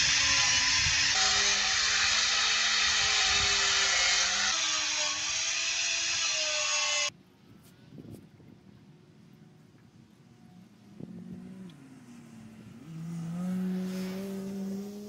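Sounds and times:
power tool motor whine: 0.0s - 7.1s.

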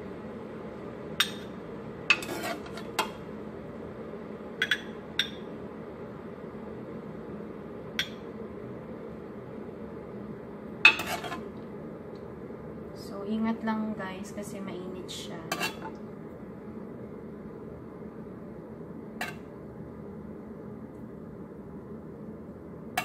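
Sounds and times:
low background noise: 0.0s - 23.0s
metal ladle clinking on pot: 4.6s - 5.4s.

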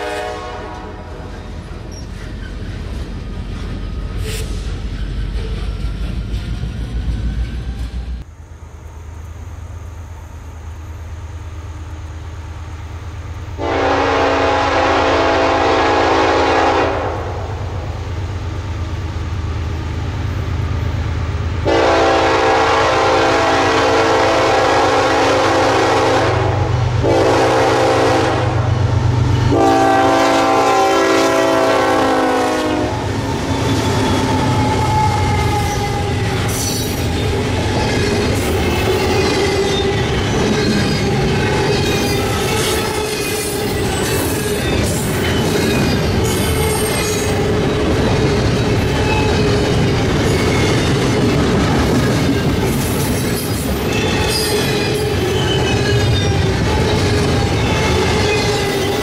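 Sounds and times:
locomotive air horn: 0.0s - 1.3s, 13.6s - 17.6s, 21.6s - 28.8s, 29.5s - 33.2s
train wheels clattering and squealing: 1.1s - 8.3s, 33.0s - 59.0s.

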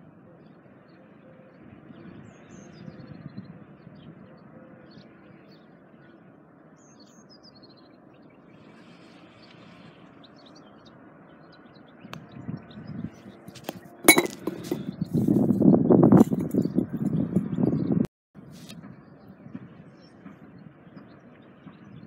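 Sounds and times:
light wind: 0.0s - 22.0s
small birds chirping: 4.8s - 14.0s
phone handling on microphone: 13.6s - 14.8s.

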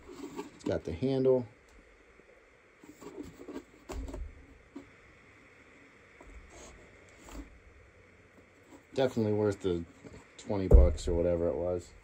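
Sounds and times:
dull knock on plastic bucket: 10.7s - 11.3s.

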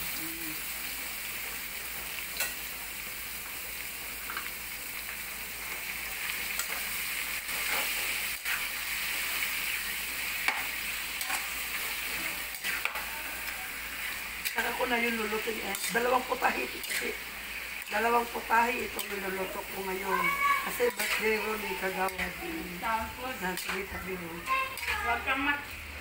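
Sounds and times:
beef sizzling in a wok: 0.0s - 26.0s
spatula scraping a pan: 7.4s - 9.8s, 10.4s - 25.2s.

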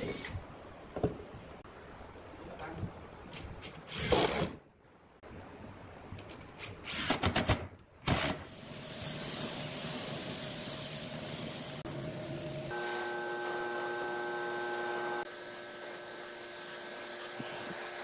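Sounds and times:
electric drill driving screws: 3.9s - 4.6s, 8.1s - 8.5s
air spray gun hissing: 8.5s - 15.3s.

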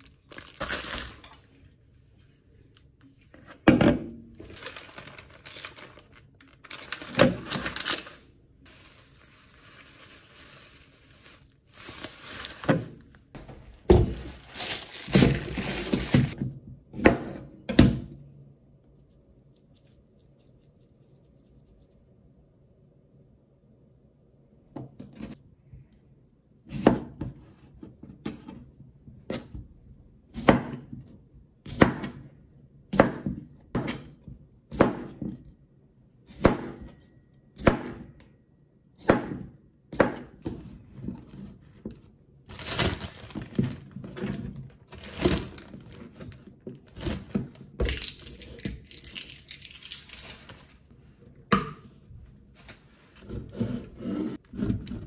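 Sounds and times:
plastic bag crinkling: 0.0s - 1.5s, 4.4s - 16.4s, 42.5s - 50.9s
knife chopping on plastic board: 16.9s - 18.0s, 30.3s - 31.0s, 31.6s - 32.2s, 32.9s - 34.1s, 34.7s - 35.4s, 36.3s - 36.9s, 37.6s - 38.1s, 39.0s - 40.6s.

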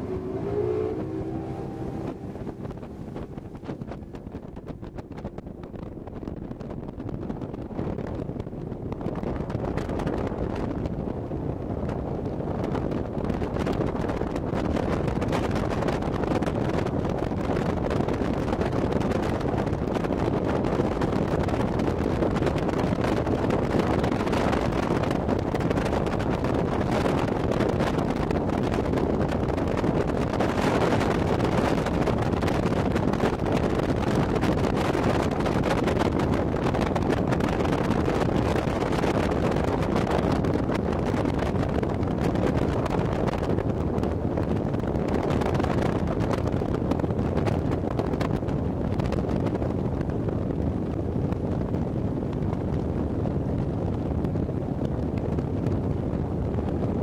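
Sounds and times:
motorboat motor: 0.0s - 22.1s
boat hull on water: 0.0s - 57.0s
wind rushing over microphone: 0.0s - 57.0s.

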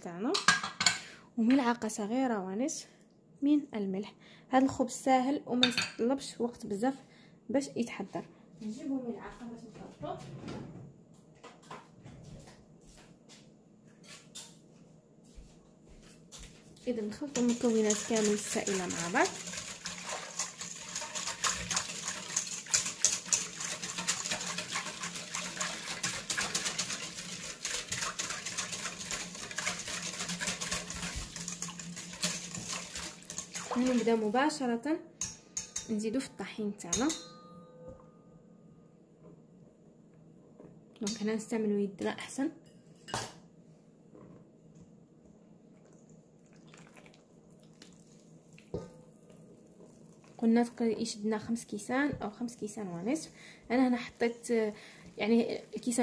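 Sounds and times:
whisk beating liquid in metal bowl: 17.1s - 34.3s.

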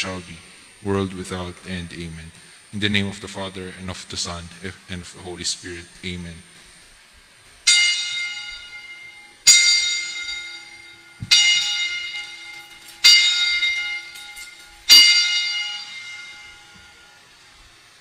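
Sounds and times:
high-pitched bell ringing: 7.7s - 17.2s.

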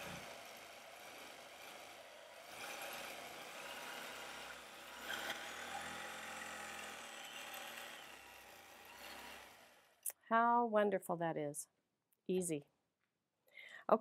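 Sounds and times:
quilting machine motor humming: 0.0s - 10.0s.

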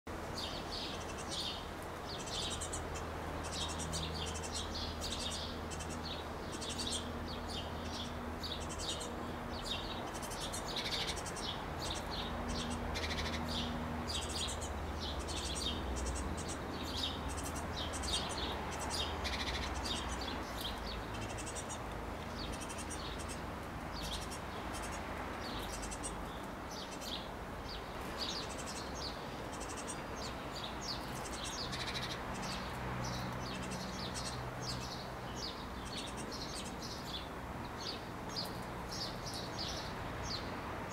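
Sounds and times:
songbirds chirping: 0.1s - 40.9s.

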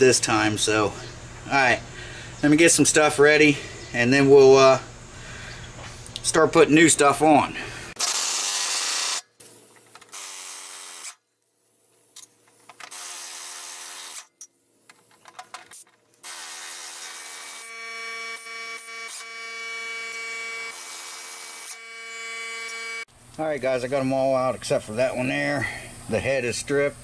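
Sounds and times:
power driver whining: 16.2s - 23.1s.

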